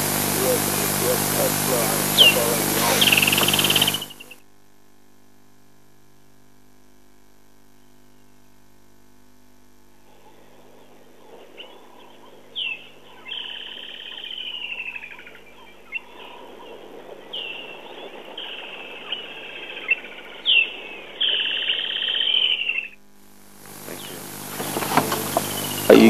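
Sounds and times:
kingfisher calling: 0:00.0 - 0:04.4, 0:10.1 - 0:23.0, 0:23.6 - 0:26.0.

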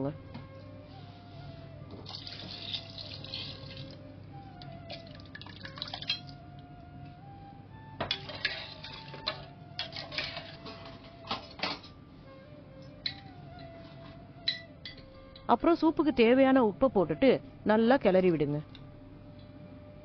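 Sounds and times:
water pouring and splashing: 0:02.0 - 0:04.0, 0:04.9 - 0:06.3
metal spoon clinking against pot: 0:08.1 - 0:10.6.

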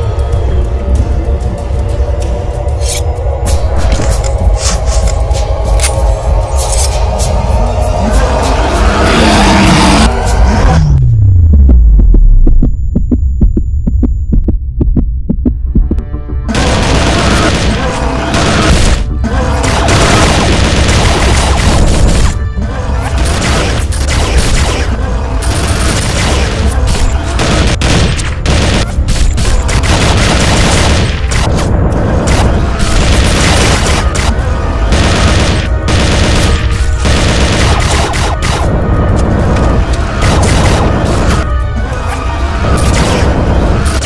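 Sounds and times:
action film music with heavy bass: 0:00.0 - 0:44.0
rapid sharp hits: 0:16.5 - 0:22.4, 0:23.2 - 0:41.5.

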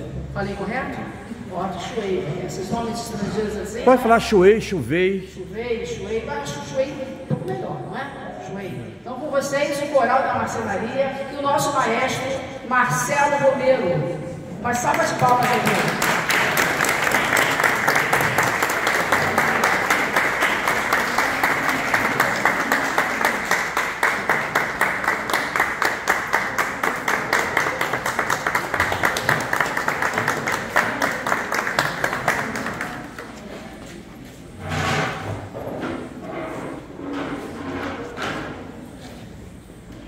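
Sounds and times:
audience applauding: 0:15.2 - 0:33.3.

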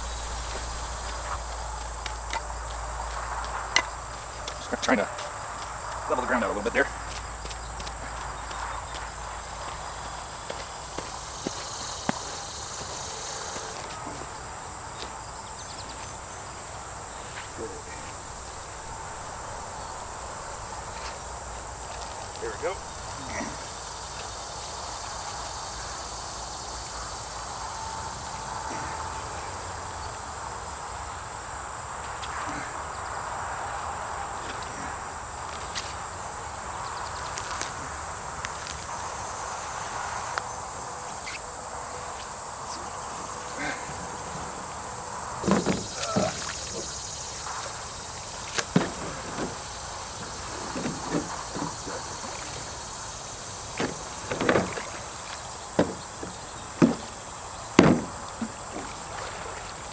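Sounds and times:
insects chirping: 0:00.0 - 0:59.9
digging knocks and thuds: 0:45.4 - 0:47.0, 0:48.5 - 0:52.5, 0:53.8 - 0:55.1, 0:55.7 - 0:59.0.

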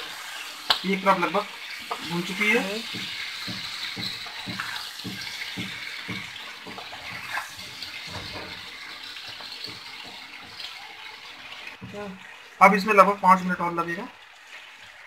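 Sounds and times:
chillies sizzling in oil: 0:00.0 - 0:15.0
wooden spatula scraping pan: 0:01.8 - 0:10.9.

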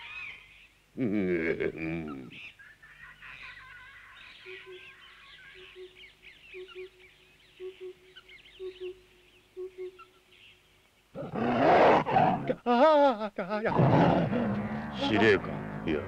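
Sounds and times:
small birds chirping: 0:02.0 - 0:12.4
low double hoot: 0:13.7 - 0:16.0.

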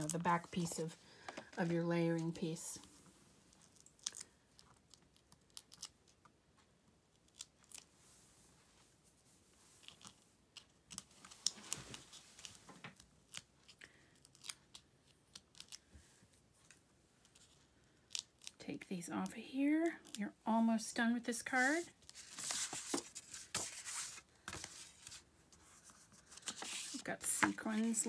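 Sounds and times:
paper rustle: 0:21.5 - 0:28.0.

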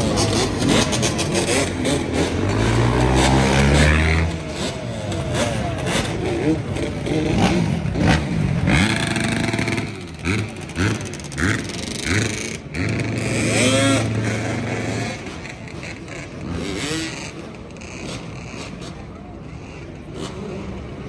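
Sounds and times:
dirt bike and atv engines revving: 0:00.0 - 0:21.0.

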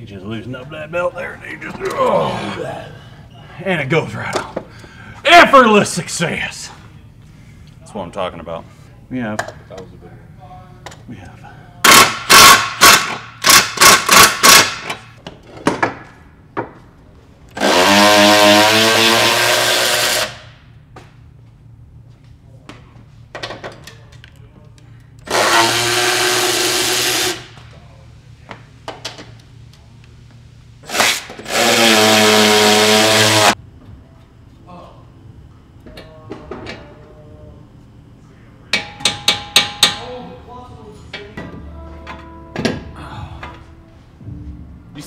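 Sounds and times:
impact wrench driving bolts: 0:11.9 - 0:15.1.

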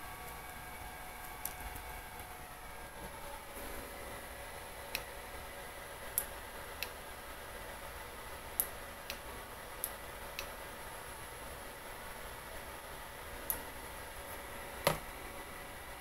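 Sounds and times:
faint hum: 0:00.0 - 0:16.0.

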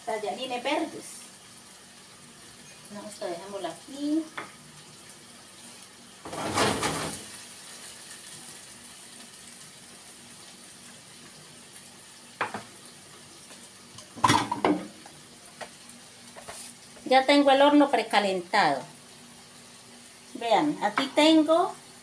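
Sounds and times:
kitchen hum: 0:00.0 - 0:22.0
sharp knock on countertop: 0:12.4 - 0:12.7, 0:14.2 - 0:14.9
dishes clattering: 0:14.2 - 0:15.0.

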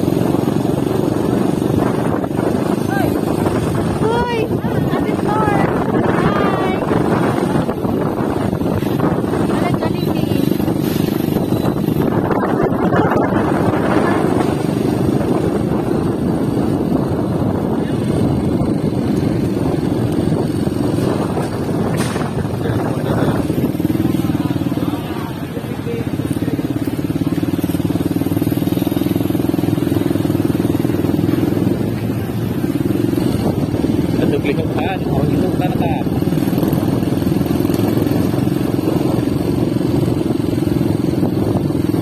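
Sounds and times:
vehicle engine and road noise: 0:00.0 - 0:42.0.

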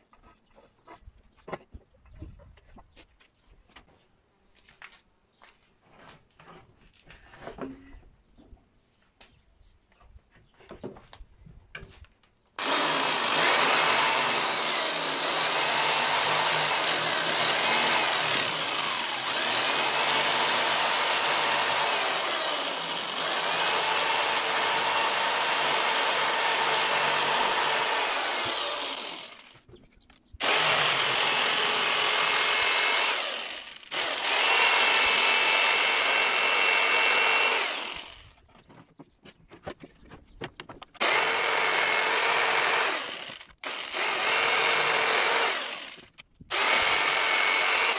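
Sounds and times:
electric jigsaw cutting wood: 0:12.6 - 0:29.6, 0:30.4 - 0:38.4, 0:41.0 - 0:47.9.

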